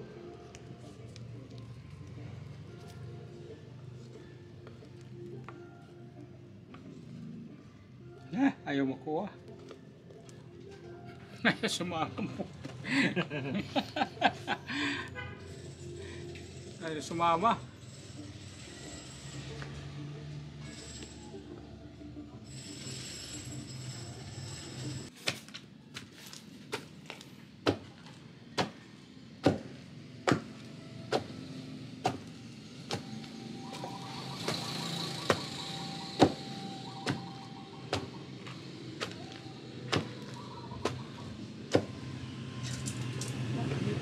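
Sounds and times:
wooden pestle pounding in mortar: 0:29.4 - 0:30.5.

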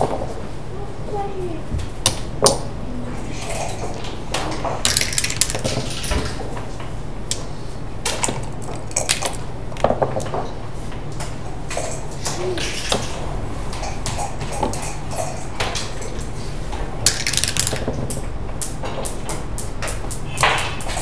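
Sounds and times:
checkers clacking on board: 0:04.4 - 0:06.4, 0:17.1 - 0:21.0
dice rattling and thrown: 0:04.8 - 0:06.3, 0:17.1 - 0:21.0.

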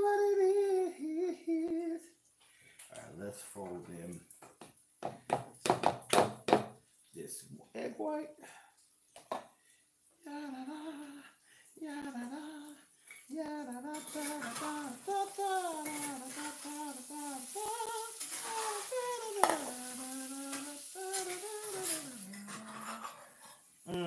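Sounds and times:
person humming a tune: 0:00.0 - 0:02.1, 0:10.2 - 0:23.2.

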